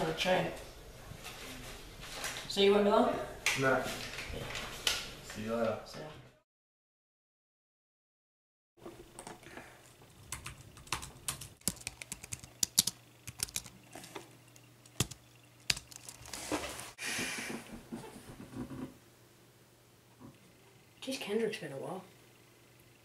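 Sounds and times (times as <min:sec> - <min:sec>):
keyboard key clicks: 0:14.9 - 0:16.2.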